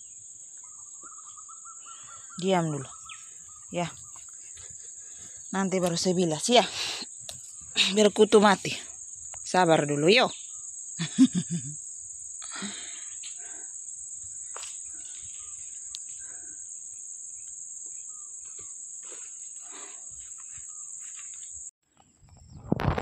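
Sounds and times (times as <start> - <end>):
insects droning: 0.0 - 23.0
faint ticks: 15.8 - 16.2.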